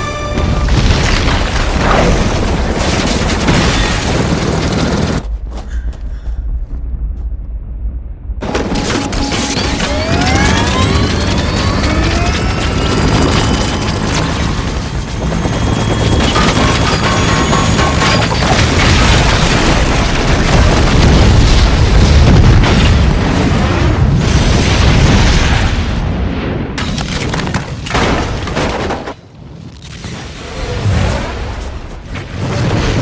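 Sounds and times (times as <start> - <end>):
dramatic score music: 0.0 - 1.3
deep booming explosion rumble: 18.4 - 26.8.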